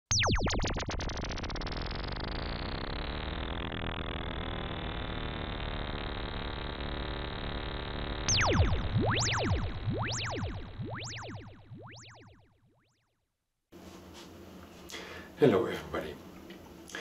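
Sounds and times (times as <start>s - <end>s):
synthesized electronic tones: 0.1s - 13.0s
low hum: 0.1s - 13.3s.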